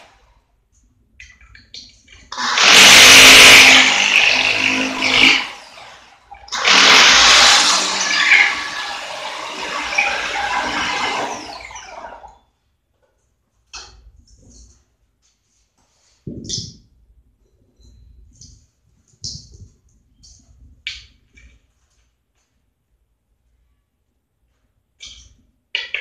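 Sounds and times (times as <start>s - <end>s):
electric drill boring into wall: 2.3s - 12.4s.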